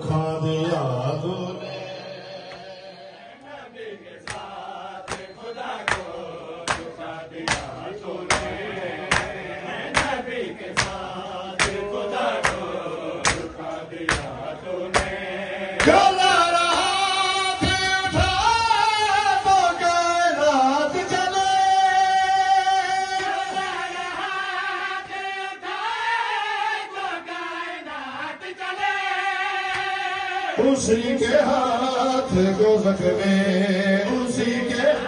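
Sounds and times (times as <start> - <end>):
person chanting into a microphone: 0.0 - 3.1
crowd of men chanting: 1.5 - 35.0
chest-beating slaps: 4.2 - 15.2.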